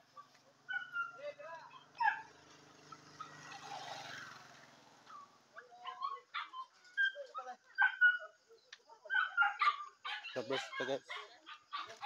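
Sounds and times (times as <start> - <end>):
yelping animal calls: 9.1 - 12.0.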